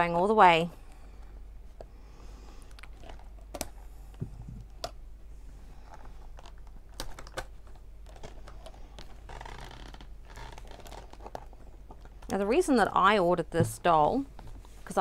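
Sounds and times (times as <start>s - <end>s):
plastic packaging clicking: 6.4s - 12.3s.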